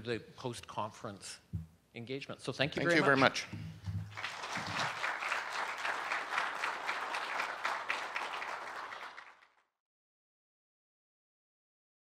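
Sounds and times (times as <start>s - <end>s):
audience applauding: 4.0s - 9.7s.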